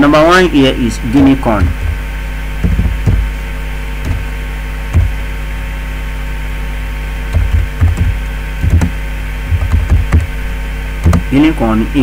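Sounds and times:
electrical mains hum: 0.0 - 12.0
keyboard keys knocking: 1.1 - 3.4, 4.0 - 5.2, 7.3 - 10.4, 11.0 - 11.4.

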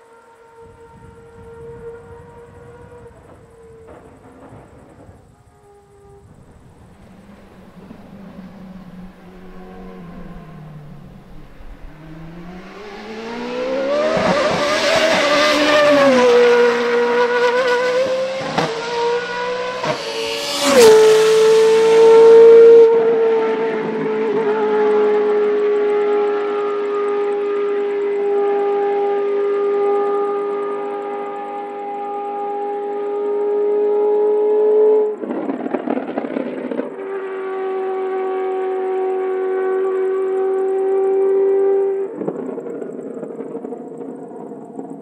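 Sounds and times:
race car engine at high revs: 6.8 - 35.5, 37.2 - 42.6.

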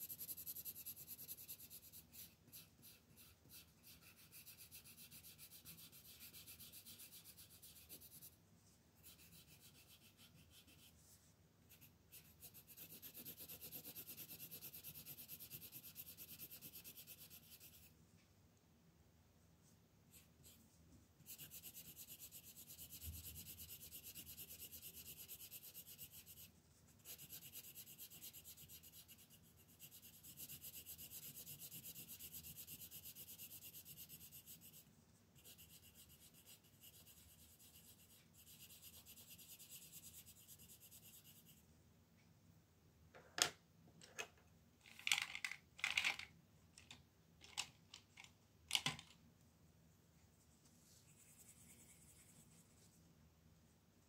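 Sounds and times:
coloured pencil scratching on paper: 0.0 - 8.4, 9.0 - 17.9, 21.2 - 41.6
pencils clicking on a table: 44.9 - 49.2.

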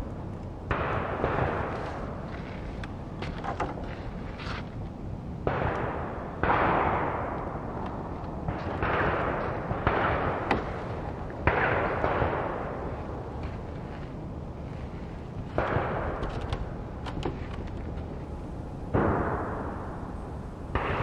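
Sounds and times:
distant shotgun shots echoing: 5.5 - 7.6, 8.5 - 10.8, 11.4 - 12.8, 15.6 - 16.2, 18.2 - 21.0.

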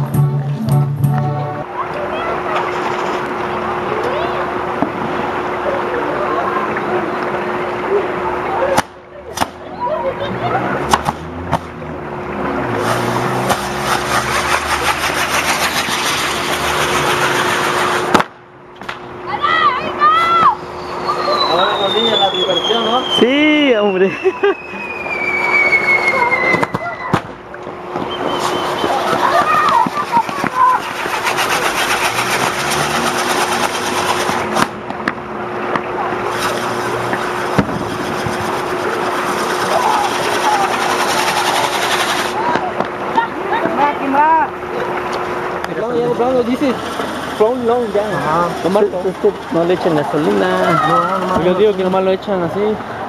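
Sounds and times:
fireworks fizzing and crackling: 12.8 - 19.0, 21.1 - 43.8.

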